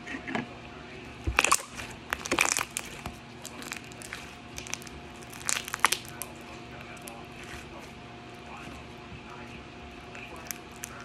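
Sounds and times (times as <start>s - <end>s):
slime crackling and popping: 1.3s - 7.6s, 10.2s - 11.0s.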